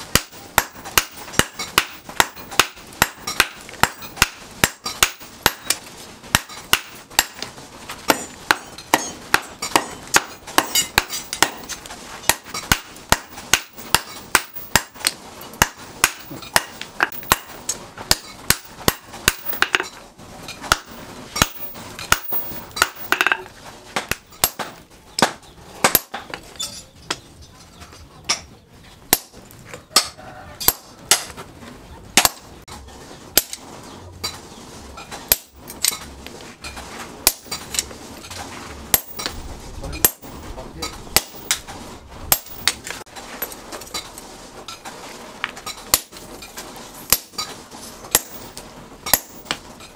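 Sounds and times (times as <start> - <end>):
hammer striking hot steel: 0.0 - 26.4, 32.2 - 32.5, 35.3 - 36.0, 37.2 - 37.9, 38.9 - 41.7, 42.3 - 42.9, 45.8 - 46.3, 47.0 - 47.5, 48.1 - 49.6.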